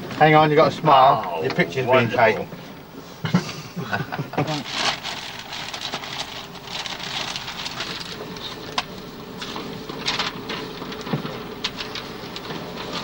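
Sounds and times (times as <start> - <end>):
faint steady hum: 0.0 - 13.0
paper rustling and crinkling: 4.5 - 13.0.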